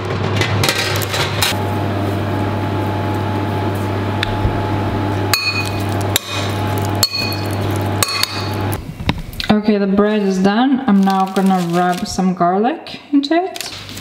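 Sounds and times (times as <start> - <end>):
kitchen appliance humming: 0.1 - 9.5.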